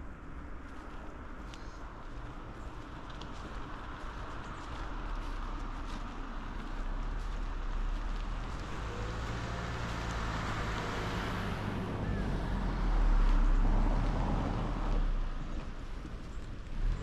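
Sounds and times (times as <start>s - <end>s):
vehicle passing by: 3.3s - 16.0s.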